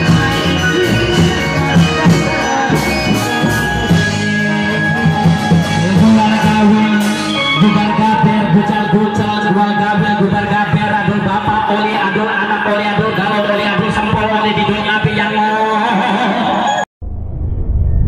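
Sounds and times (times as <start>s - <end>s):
held melodic notes: 0.0s - 10.2s
drums and percussion: 0.0s - 12.2s.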